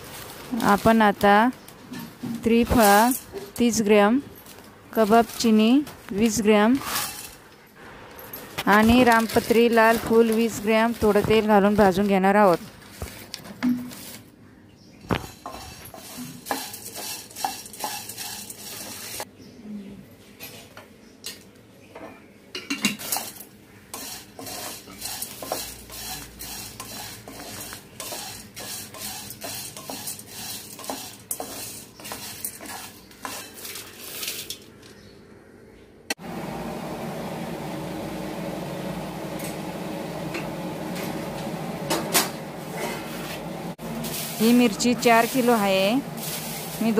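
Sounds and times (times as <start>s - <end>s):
light sizzle: 0.0s - 14.3s, 15.1s - 19.3s, 22.6s - 34.7s, 36.2s - 46.9s
spatula scraping frying pan: 6.8s - 7.4s, 15.2s - 19.3s, 23.0s - 34.5s, 42.7s - 46.9s.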